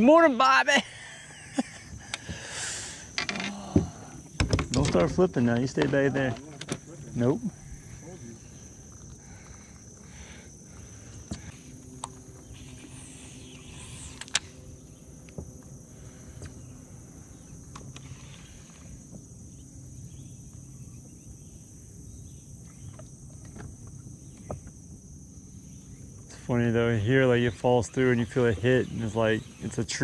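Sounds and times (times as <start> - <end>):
insect chorus: 0.0 - 30.0
sharp clicks and knocks: 4.4 - 6.9.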